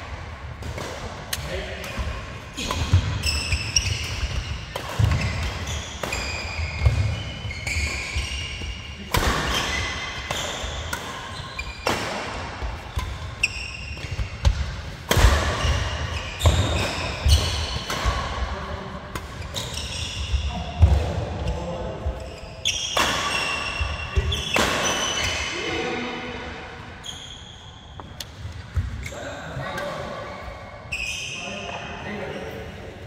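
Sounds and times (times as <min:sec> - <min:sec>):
rackets hitting shuttlecock: 0:00.4 - 0:21.6, 0:22.6 - 0:25.5
shoes squeaking on court: 0:02.6 - 0:12.0, 0:12.8 - 0:14.7, 0:19.2 - 0:20.8, 0:27.0 - 0:29.2, 0:30.3 - 0:31.8.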